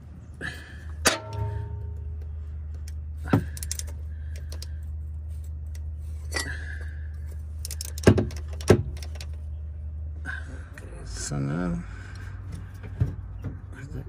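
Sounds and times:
low hum: 0.0s - 13.4s.

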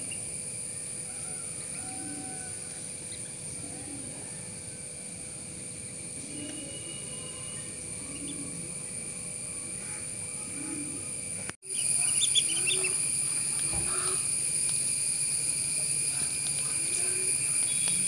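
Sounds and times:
insects droning: 0.0s - 18.0s
ducklings peeping: 11.7s - 14.3s.

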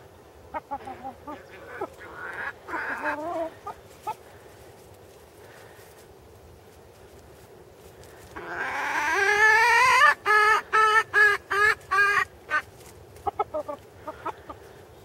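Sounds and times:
chicken clucking: 0.5s - 4.2s, 8.4s - 15.0s
cockerel crowing: 8.4s - 12.7s.

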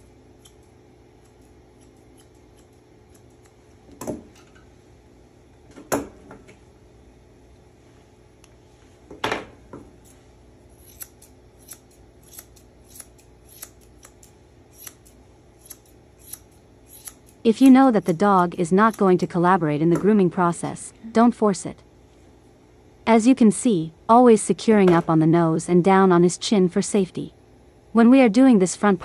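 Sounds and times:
shears snipping hair: 0.0s - 3.8s, 10.0s - 20.5s.

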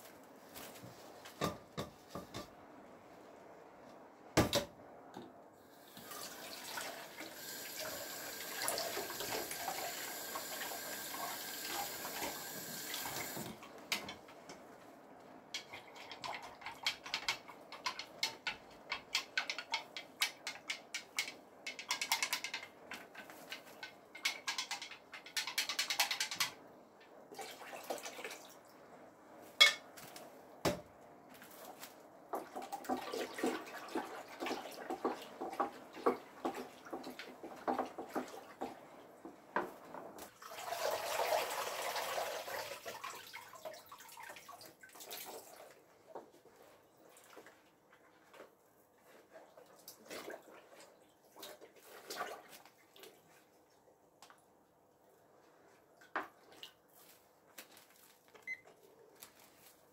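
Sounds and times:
water sloshing in a basin: 5.8s - 9.9s, 27.3s - 28.7s, 31.4s - 39.3s, 40.2s - 53.8s, 55.7s - 58.1s.

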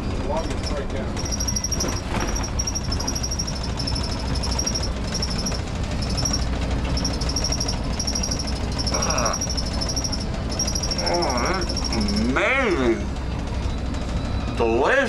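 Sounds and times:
bus interior rumble: 0.0s - 15.0s
high-pitched chattering: 1.2s - 12.4s.

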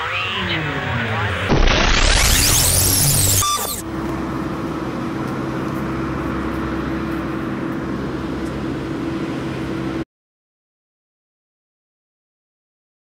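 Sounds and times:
rushing noise: 0.0s - 4.8s
engine drone: 0.0s - 10.0s.

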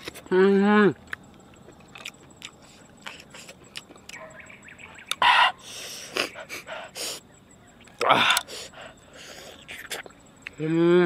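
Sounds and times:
faint bird chirp: 1.2s - 11.0s
hissing breath in: 5.5s - 7.3s.

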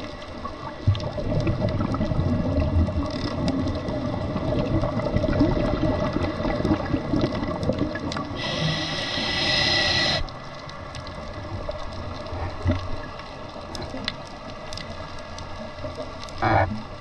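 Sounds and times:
bubbles gurgling: 0.5s - 10.2s
faint clicks: 3.0s - 3.9s, 9.9s - 17.0s
diver breathing through regulator: 8.4s - 10.3s.

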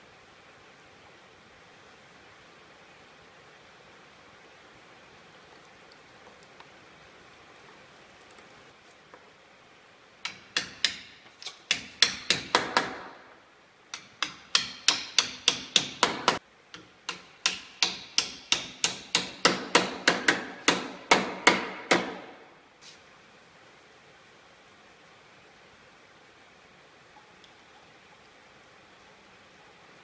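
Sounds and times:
hammer striking wood: 10.3s - 13.2s, 14.0s - 22.4s.

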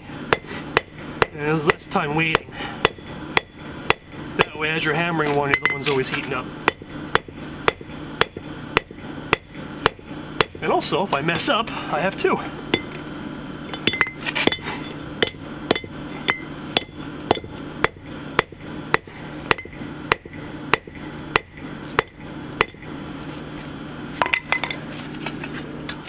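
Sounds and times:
hammer striking spike on anvil: 5.5s - 6.0s, 15.2s - 22.8s.

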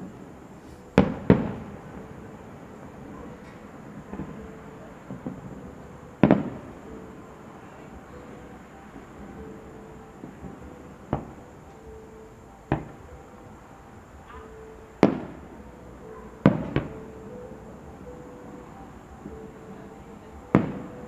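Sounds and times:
firework shells booming: 0.9s - 6.8s, 10.2s - 11.4s, 12.7s - 13.1s, 14.4s - 15.5s, 16.4s - 17.1s, 20.5s - 20.9s.

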